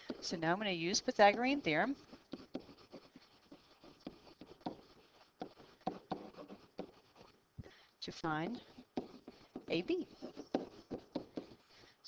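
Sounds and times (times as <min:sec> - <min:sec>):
stylus tapping on tablet screen: 0:01.0 - 0:07.3, 0:08.9 - 0:11.6.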